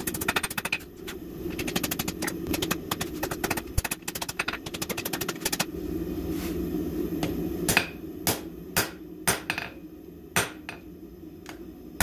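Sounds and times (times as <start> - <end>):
hammer striking hot steel on anvil: 7.7 - 9.7.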